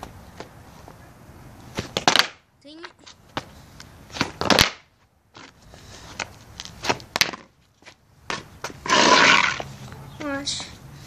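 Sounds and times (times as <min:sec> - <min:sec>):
skateboard knocking on concrete: 0:01.7 - 0:03.5, 0:06.2 - 0:09.7
skateboard rolling: 0:08.3 - 0:09.7.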